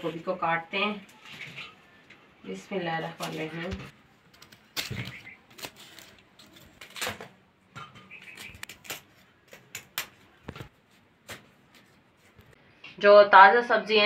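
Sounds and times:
knife snapping cauliflower stems: 4.4 - 7.3, 8.1 - 10.2.

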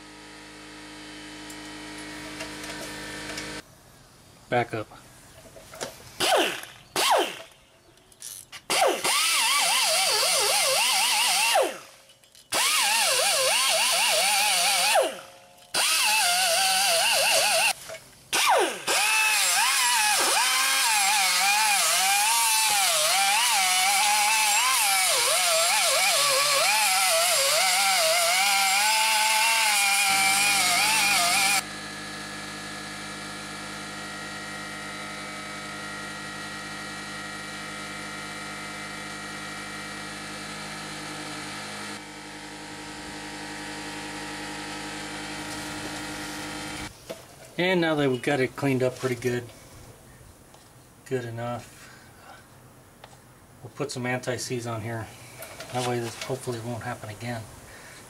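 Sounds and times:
die grinder whining on metal: 0.0 - 3.6, 6.2 - 7.6, 8.2 - 46.9.

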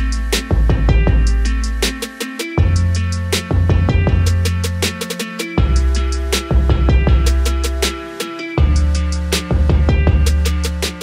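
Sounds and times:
music with deep bass and drums: 0.0 - 11.0.

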